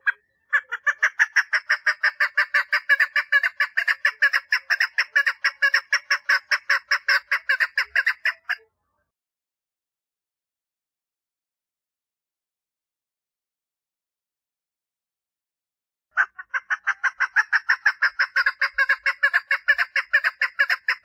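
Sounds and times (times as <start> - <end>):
partridge mating call: 0.0 - 8.6, 16.2 - 21.0.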